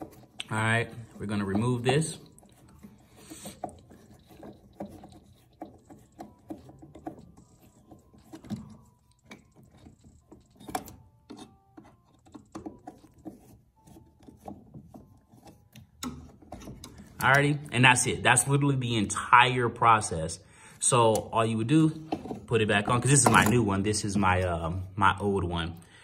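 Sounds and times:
screwdriver clicking and scraping screw: 0.0s - 17.6s.

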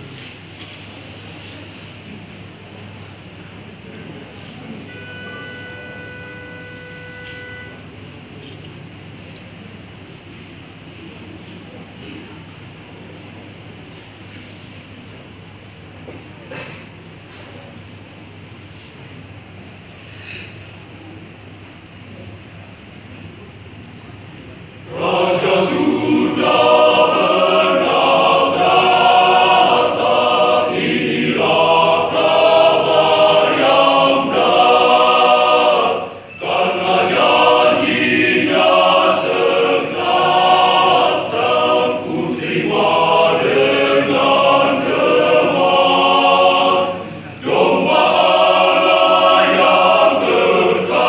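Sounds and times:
men's choir singing: 24.9s - 51.0s.

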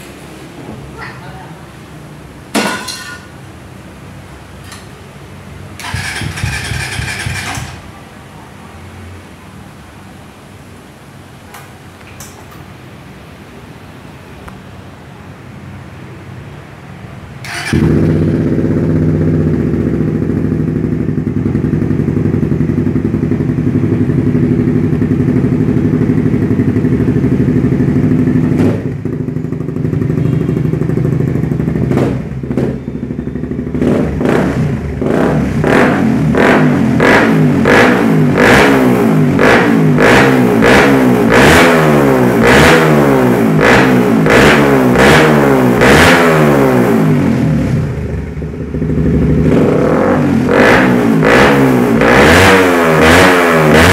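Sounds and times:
motorcycle engine running: 5.7s - 8.0s, 17.4s - 53.9s
motorcycle throttle blips: 17.4s - 38.7s.

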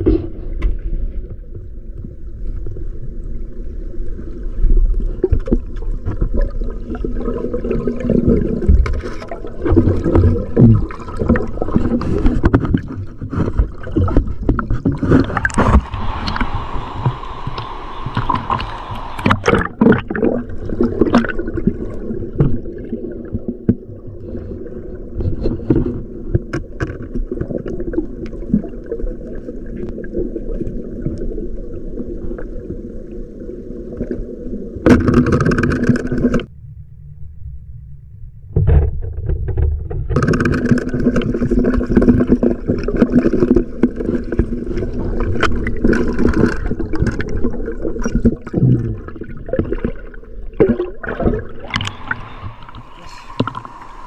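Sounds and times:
muffled water sloshing and gurgling: 0.0s - 54.0s
hissing: 15.2s - 19.8s.

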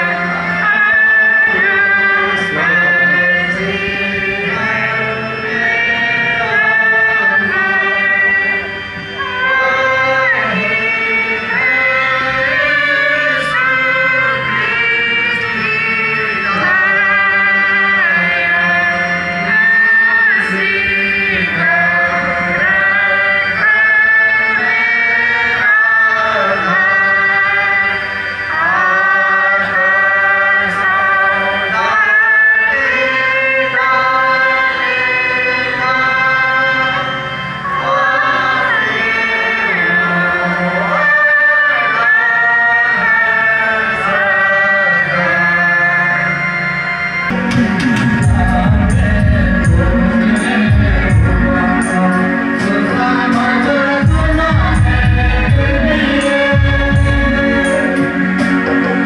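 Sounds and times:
slow chant-like singing: 0.0s - 59.0s.

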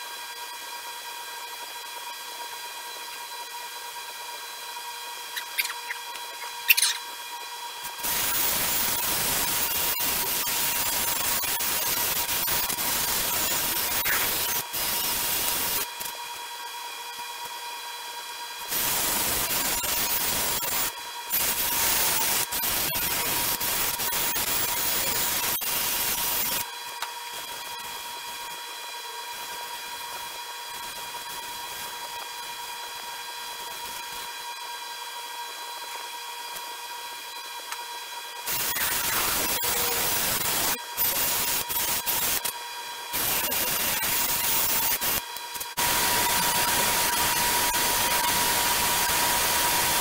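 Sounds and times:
steady high whine: 0.0s - 16.4s, 18.6s - 50.0s
loud steady hiss: 8.0s - 15.9s, 18.7s - 26.6s, 38.5s - 42.4s, 43.2s - 45.2s, 45.8s - 50.0s.

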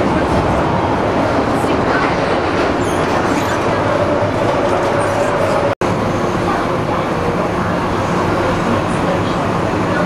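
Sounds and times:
subway train rumble and hiss: 0.0s - 10.0s.

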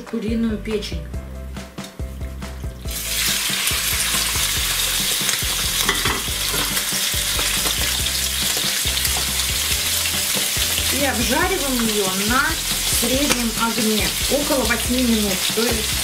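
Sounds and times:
food sizzling in oil: 2.8s - 16.0s
wooden spatula knocking: 5.7s - 9.5s.

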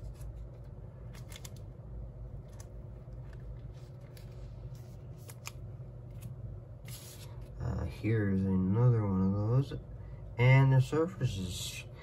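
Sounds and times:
cards and plastic sleeves rustling: 0.0s - 7.6s
steady low hum: 0.0s - 12.0s.

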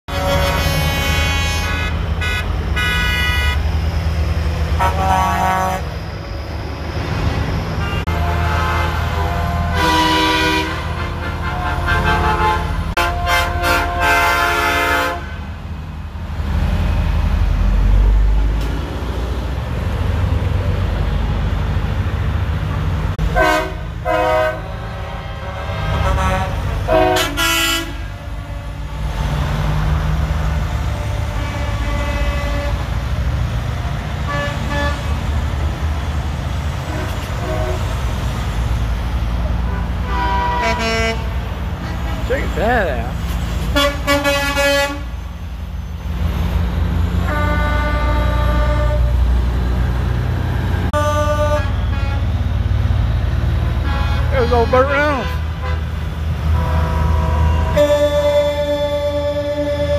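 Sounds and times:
truck horns honking: 0.1s - 4.0s, 4.6s - 6.1s, 7.7s - 15.6s, 23.1s - 35.7s, 36.7s - 45.3s, 46.4s - 49.5s, 50.6s - 52.6s, 53.6s - 59.9s
diesel truck engines rumbling: 0.1s - 59.9s.

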